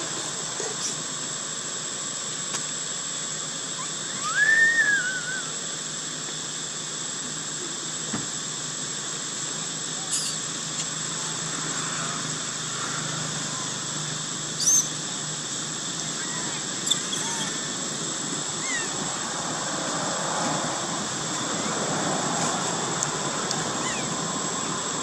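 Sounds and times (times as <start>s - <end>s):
outdoor ambience hiss: 0.0s - 25.0s
high-pitched animal call: 3.7s - 5.6s, 10.0s - 10.4s, 14.6s - 15.0s, 16.1s - 17.7s, 18.6s - 19.1s, 23.6s - 24.7s
thin high whine: 3.7s - 6.1s, 9.0s - 25.0s.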